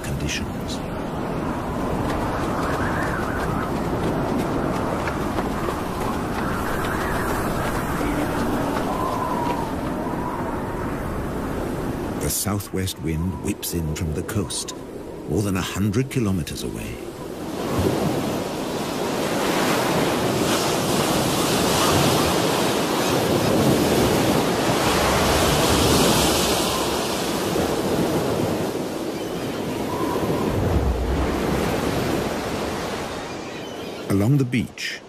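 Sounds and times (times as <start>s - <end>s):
strong wind: 0.0s - 15.4s, 17.0s - 33.4s
surf breaking against rocks: 1.9s - 10.0s.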